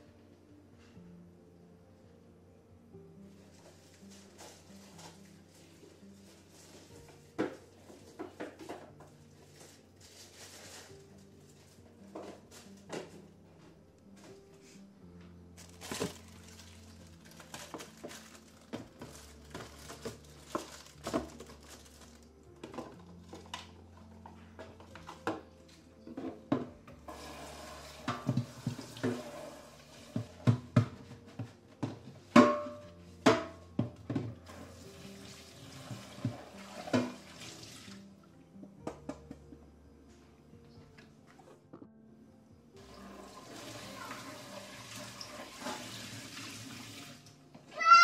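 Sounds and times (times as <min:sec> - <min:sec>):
soft background music: 0:00.0 - 0:48.0
household items clinking and knocking: 0:06.2 - 0:14.4, 0:15.6 - 0:34.8.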